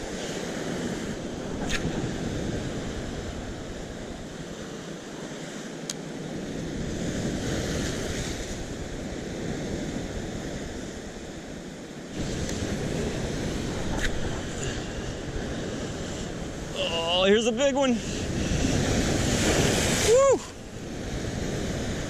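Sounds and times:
wind rumble on microphone: 0:00.0 - 0:22.0
surf breaking over rocks: 0:12.1 - 0:22.0.

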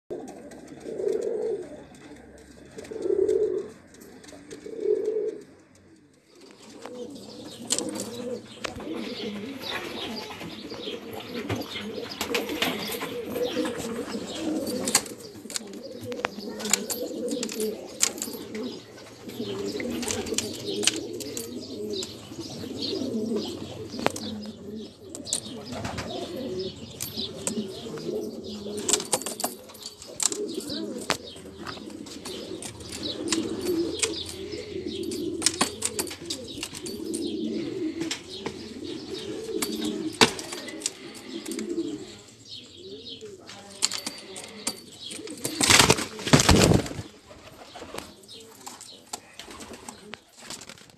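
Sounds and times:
pigeons cooing: 0:00.1 - 0:50.9
wings flapping: 0:45.5 - 0:48.1.

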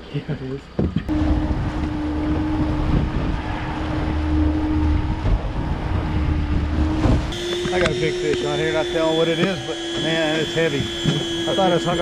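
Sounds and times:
wind buffeting microphone: 0:00.8 - 0:08.5
outboard motor running: 0:01.0 - 0:12.0
water rushing past hull: 0:01.1 - 0:07.5.

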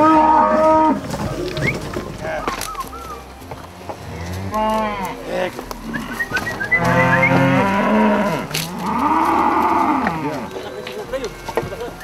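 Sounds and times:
cattle mooing: 0:00.0 - 0:01.3, 0:04.0 - 0:10.6.

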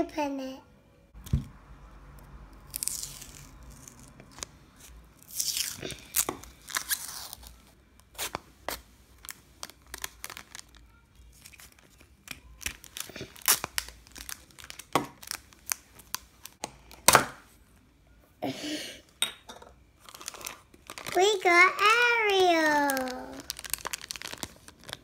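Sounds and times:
plastic wrapping crinkling: 0:02.8 - 0:17.0, 0:20.0 - 0:25.0.

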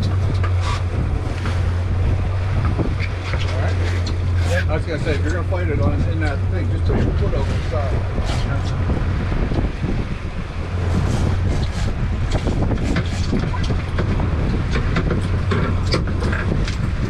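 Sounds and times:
outboard motors running: 0:00.0 - 0:17.0
wind buffeting microphone: 0:00.0 - 0:17.0
sharp knocks and clicks: 0:10.9 - 0:17.0.

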